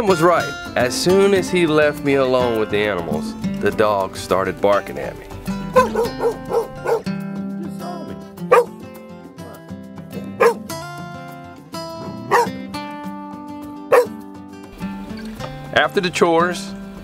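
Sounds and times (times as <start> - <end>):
background music with held notes: 0.0 - 17.0
dogs barking: 5.7 - 7.1, 8.4 - 8.8, 10.4 - 10.8, 12.1 - 12.6, 13.9 - 14.2.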